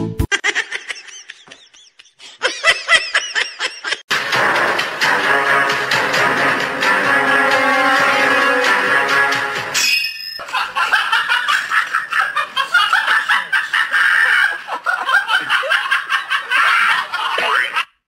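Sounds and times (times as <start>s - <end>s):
person laughing: 0.3s - 4.1s, 10.5s - 17.9s.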